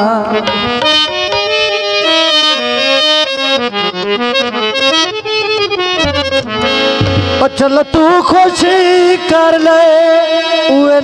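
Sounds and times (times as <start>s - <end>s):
person singing folk song: 0.0s - 0.6s, 7.4s - 11.0s
harmonium melody: 0.0s - 11.0s.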